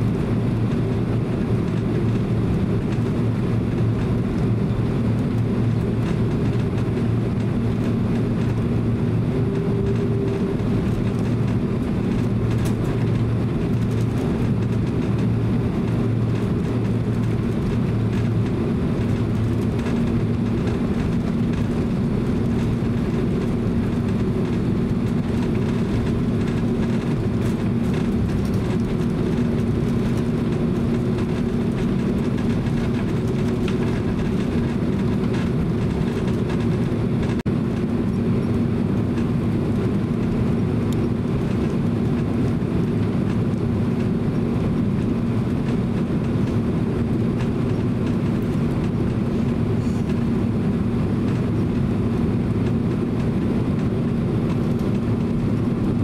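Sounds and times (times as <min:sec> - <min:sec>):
jet engines running at taxi power: 0:00.0 - 0:56.0
low cabin rumble and hum: 0:00.0 - 0:56.0.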